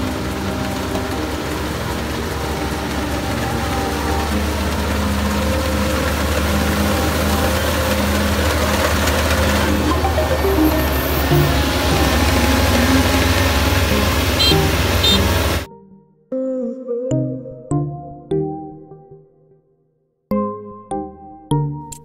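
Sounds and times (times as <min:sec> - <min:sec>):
combine harvester engine drone: 0:00.0 - 0:15.7.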